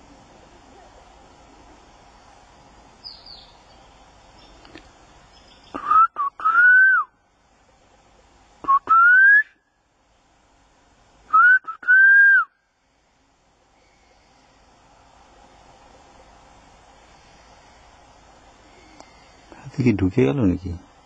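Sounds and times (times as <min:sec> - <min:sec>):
rising whistles: 0:05.7 - 0:07.2, 0:08.6 - 0:09.6, 0:11.3 - 0:12.6.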